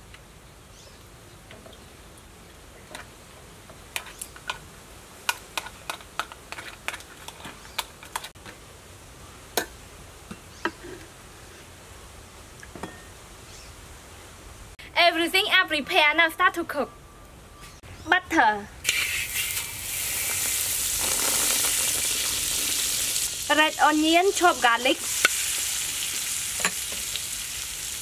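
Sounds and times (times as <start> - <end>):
spoon scraping crab shell: 5.3 - 8.3.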